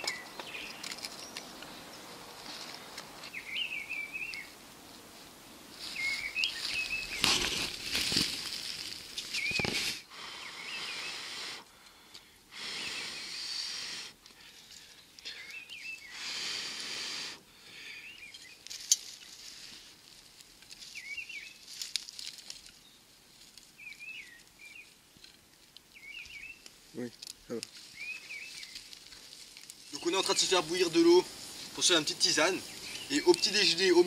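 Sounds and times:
small bird chirping: 3.3s - 4.5s, 5.9s - 7.2s, 25.8s - 26.6s, 27.5s - 28.9s, 31.9s - 34.0s
person blowing on embers: 9.4s - 18.2s.

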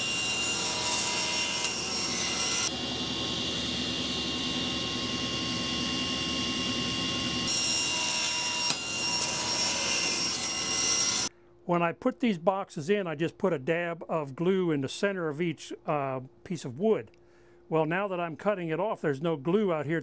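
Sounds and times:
table saw cutting wood: 0.0s - 11.3s.

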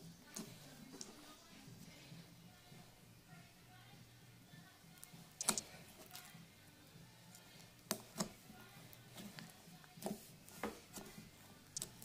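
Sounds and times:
slime clicking and popping: 5.4s - 5.7s, 11.8s - 12.0s.

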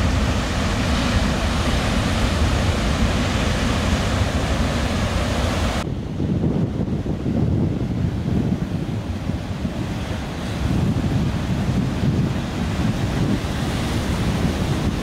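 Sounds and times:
ocean surf breaking: 0.0s - 15.0s
wind buffeting microphone: 0.0s - 15.0s.

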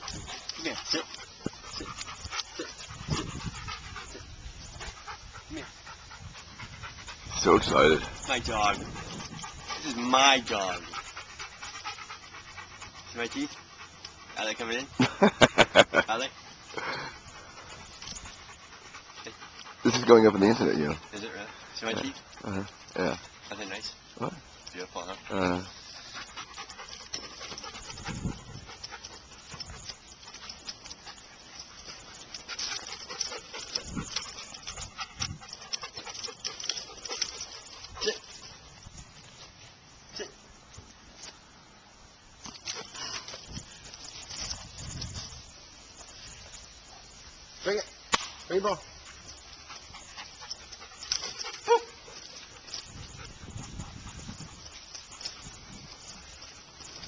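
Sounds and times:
small clicks and rustles: 17.5s - 20.1s, 25.8s - 41.5s, 42.4s - 46.8s, 49.0s - 57.0s
dog breathing: 20.9s - 22.9s
sharp click: 48.1s - 48.5s.

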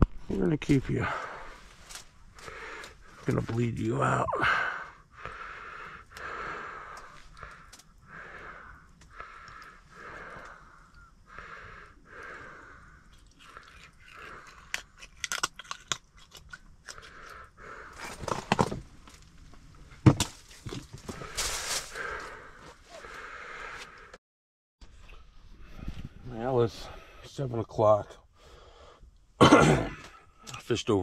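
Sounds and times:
heavy breathing: 0.9s - 14.9s, 16.9s - 18.3s, 21.0s - 24.2s, 28.3s - 29.1s
crunchy clicks of gills cut: 13.1s - 18.5s.

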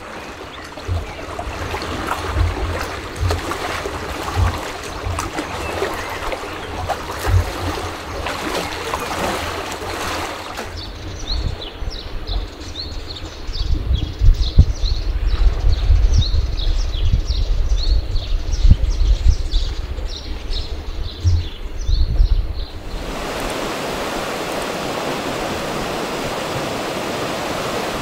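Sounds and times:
water lapping at shore: 0.0s - 13.2s, 22.7s - 28.0s
small birds chirping: 0.0s - 23.6s
wind buffeting microphone: 0.0s - 28.0s.

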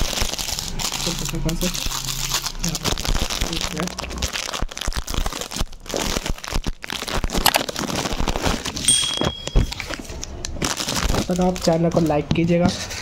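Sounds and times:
plastic wrapper crinkling: 0.0s - 12.3s
brief high tone: 8.9s - 9.8s.

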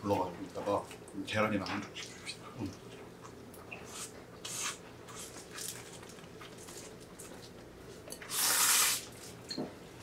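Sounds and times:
noodles being slurped: 8.3s - 9.2s.

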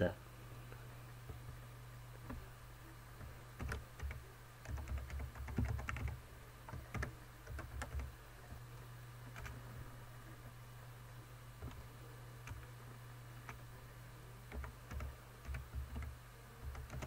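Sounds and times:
steady low hum: 0.0s - 17.0s
computer keyboard typing: 3.6s - 8.1s, 9.3s - 9.6s, 12.4s - 12.6s, 14.5s - 17.0s.

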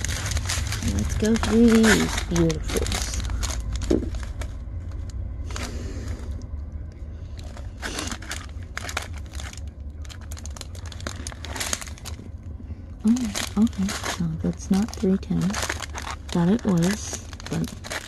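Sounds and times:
plastic bags crinkling: 0.0s - 5.7s, 7.3s - 18.0s
steady low hum: 0.0s - 18.0s.

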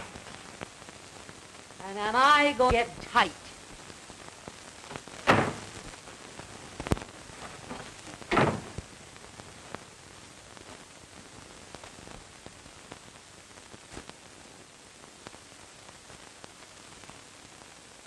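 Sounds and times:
old film soundtrack hiss: 0.0s - 18.0s
short thuds: 4.9s - 5.7s, 6.9s - 8.8s.

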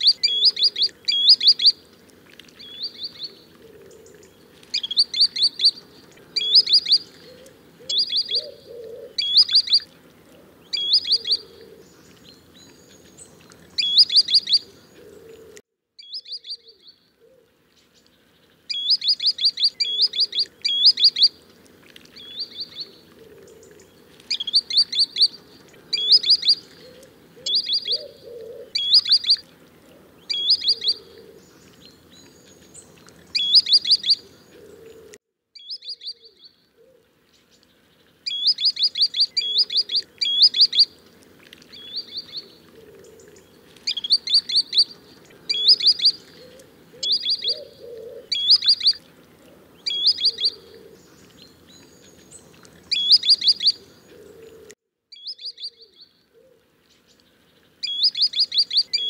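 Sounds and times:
bird whistled calls: 6.4s - 7.1s, 7.8s - 9.8s, 10.7s - 11.6s, 13.8s - 14.6s, 24.3s - 29.4s, 30.3s - 31.1s, 33.4s - 34.2s, 35.6s - 36.5s, 38.3s - 40.9s, 43.9s - 49.0s, 49.8s - 50.7s, 52.9s - 53.8s, 55.1s - 56.1s, 57.8s - 59.0s.

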